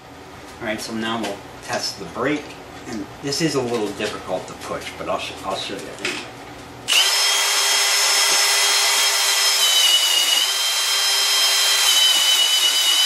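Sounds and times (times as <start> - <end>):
electric drill whining: 6.9 - 13.0.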